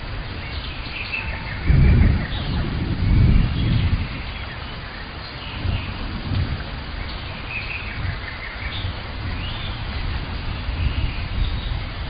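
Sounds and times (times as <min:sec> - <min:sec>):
rain hissing: 0:00.0 - 0:12.0.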